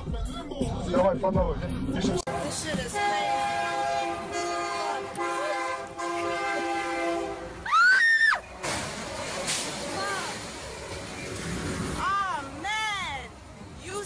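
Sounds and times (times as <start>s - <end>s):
locomotive air horn blast: 2.3s - 7.6s.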